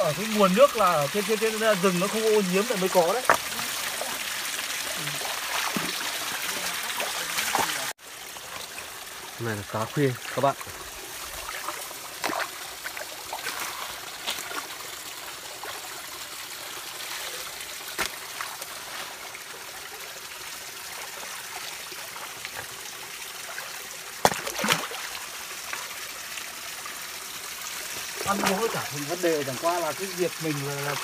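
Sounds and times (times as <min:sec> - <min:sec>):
stream trickling: 0:00.0 - 0:31.0
splashes in water: 0:02.9 - 0:08.7, 0:11.3 - 0:15.0, 0:23.4 - 0:25.9, 0:28.1 - 0:29.6.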